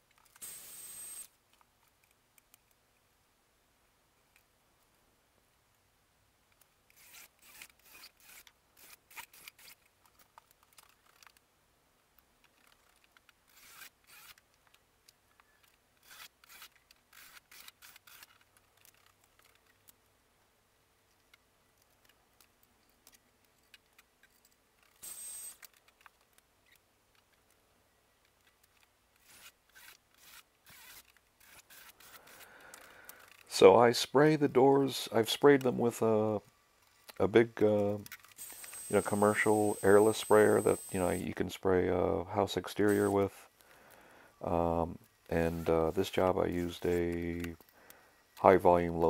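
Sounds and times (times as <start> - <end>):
brief hiss: 0.4 - 1.3
light clicks and rubbing: 12.4 - 20.0, 21.0 - 25.0.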